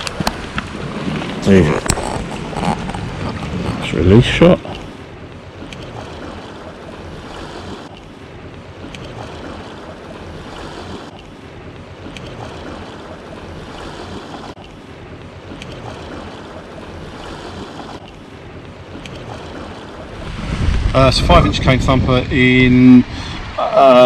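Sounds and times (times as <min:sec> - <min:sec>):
wind noise on microphone: 0:00.0 - 0:04.2, 0:20.2 - 0:23.6
sea washing against rocks: 0:00.0 - 0:23.8.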